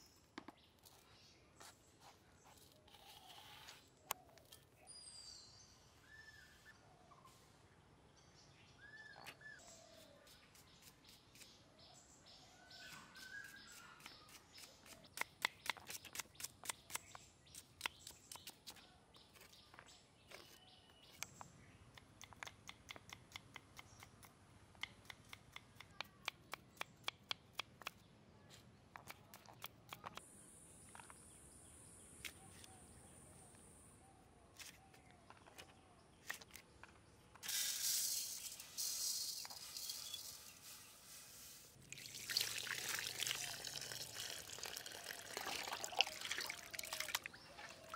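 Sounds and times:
birds chirping: 38.0 - 47.9.

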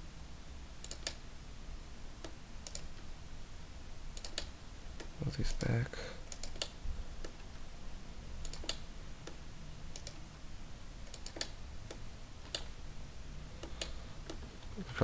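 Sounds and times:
faint low hum: 0.0 - 15.0
mouse and keyboard clicks: 8.4 - 10.2, 11.0 - 12.7.

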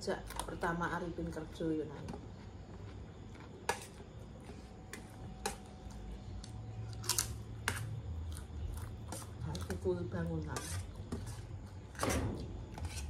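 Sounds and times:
metal spoon scraping metal tray: 10.4 - 13.0.

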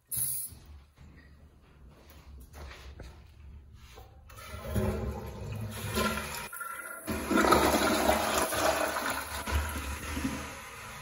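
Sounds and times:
toilet flushing: 4.3 - 11.0.

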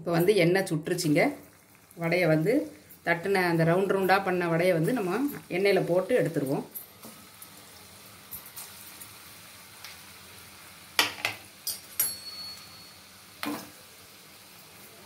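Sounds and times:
food sizzling in hot oil: 0.0 - 15.0
sharp metallic clinks: 11.7 - 13.0.

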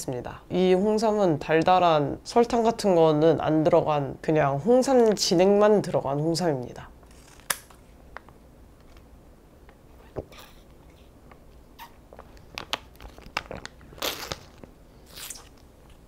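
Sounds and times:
mouth and swallowing sounds: 11.8 - 15.6
plastic pouch crinkling: 12.1 - 15.6.

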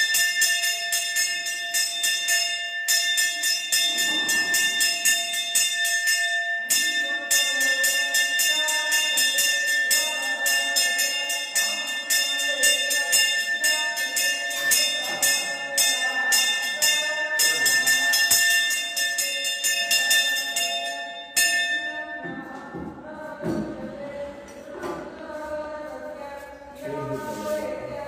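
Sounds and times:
brass hand bell ringing: 0.0 - 22.2
person chanting softly: 6.7 - 21.2, 21.8 - 28.0.

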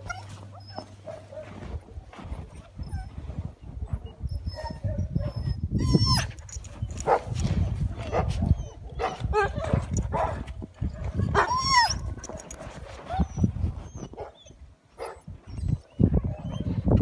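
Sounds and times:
low buffeting and rustling: 0.0 - 17.0
dog whine-howl: 4.3 - 6.3.

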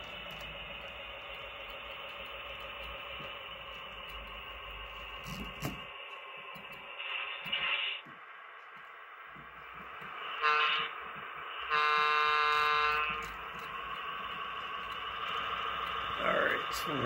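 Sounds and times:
low engine rumble: 0.0 - 7.0, 8.1 - 17.0
model locomotive horn: 10.3 - 11.0, 11.6 - 13.9.

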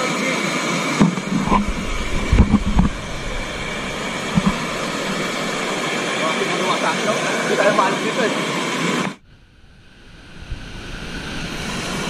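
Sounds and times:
waterfall rushing: 1.1 - 7.6
short low thumps: 1.2 - 5.8.

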